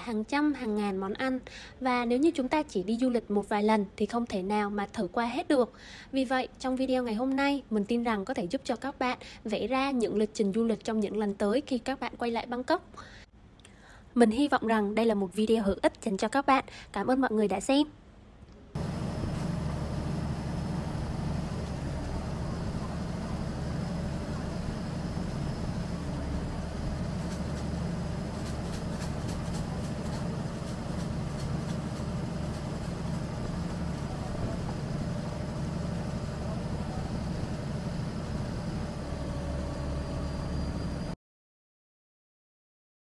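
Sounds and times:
low rumble of vehicle noise: 18.2s - 41.2s
faint even hum: 18.7s - 41.2s.

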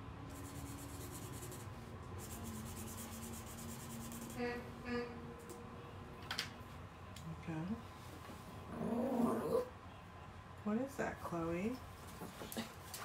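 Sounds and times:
coloring tool scratching paper: 0.3s - 4.4s.

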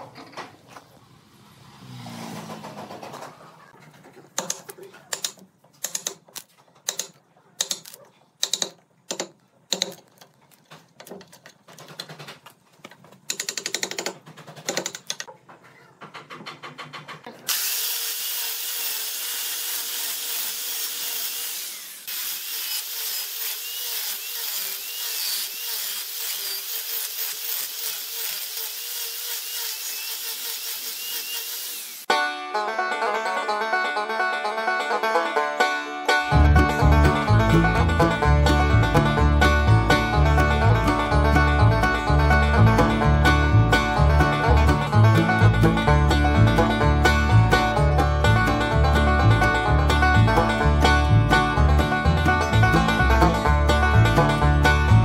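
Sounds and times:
sharp knocks and rattles: 2.4s - 17.5s
angle grinder sanding wood: 17.5s - 32.1s.

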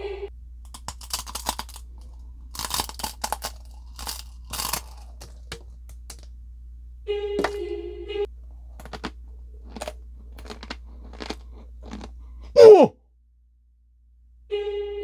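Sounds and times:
crunching dry noodles: 0.6s - 6.3s, 8.4s - 12.6s.

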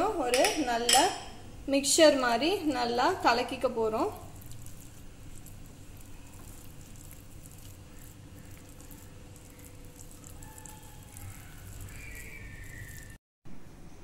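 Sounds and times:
hand squishing wet dough: 3.9s - 13.2s.

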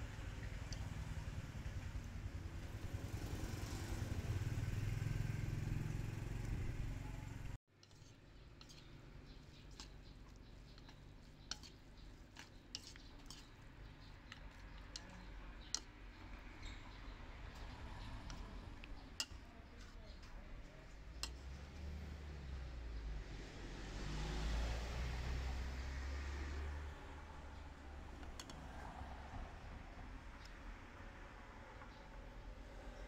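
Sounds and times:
passing vehicle engine rumble: 0.0s - 7.6s, 13.2s - 33.0s
spoon and chopsticks clicking on bowl: 7.8s - 16.8s, 17.5s - 20.3s.

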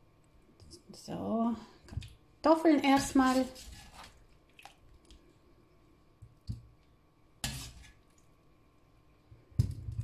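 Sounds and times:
wet sound of broth: 3.5s - 9.1s.

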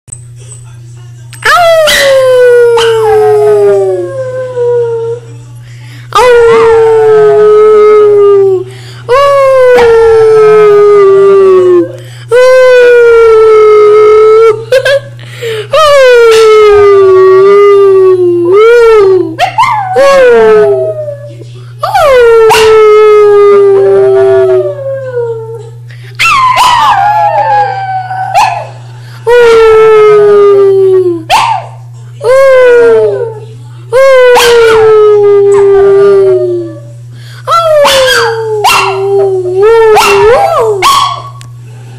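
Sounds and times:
small dog howling: 1.4s - 4.3s, 21.8s - 24.7s, 25.6s - 28.8s, 34.0s - 36.9s, 37.5s - 41.4s.

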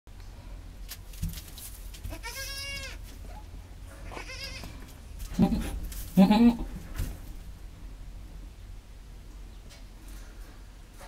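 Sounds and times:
goat bleating: 2.1s - 3.0s, 4.0s - 6.8s.

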